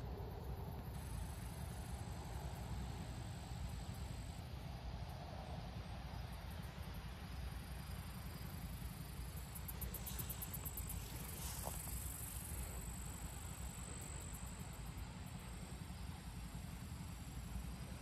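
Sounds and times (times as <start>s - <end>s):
insects chirping: 5.4s - 18.0s.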